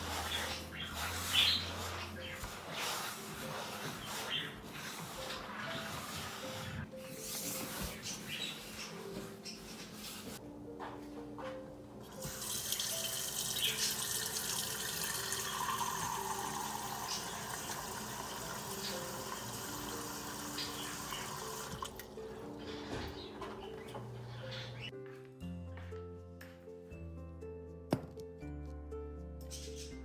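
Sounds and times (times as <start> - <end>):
soft background music: 0.0 - 30.0
tap water filling a saucepan: 12.2 - 22.1.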